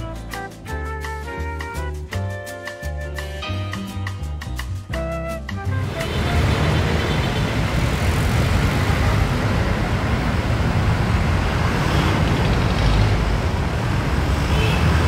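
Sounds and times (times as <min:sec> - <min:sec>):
road traffic passing: 0:05.6 - 0:15.0.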